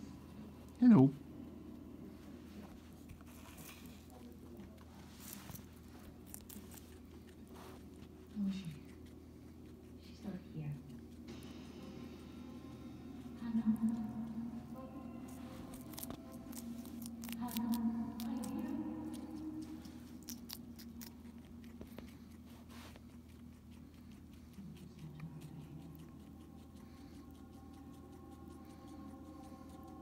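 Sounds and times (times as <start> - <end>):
guinea pig crunching food: 1.7 - 30.0
faint steady tones: 7.2 - 20.3, 20.9 - 30.0.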